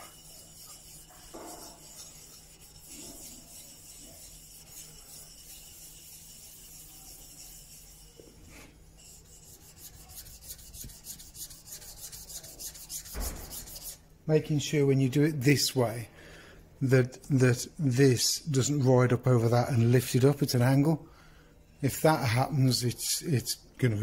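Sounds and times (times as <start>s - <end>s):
chisel scraping on sharpening stone: 0.0s - 14.0s.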